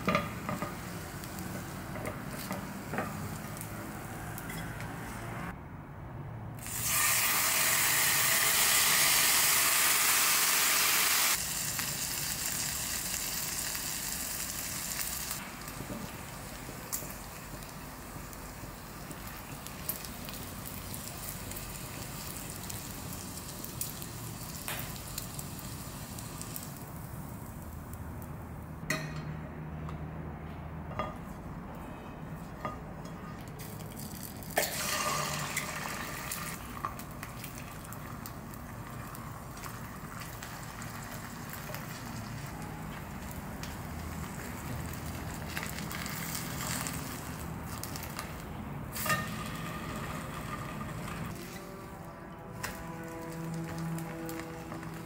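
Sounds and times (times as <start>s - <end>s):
egg sizzling in frying pan: 6.6s - 27.0s, 34.1s - 51.3s.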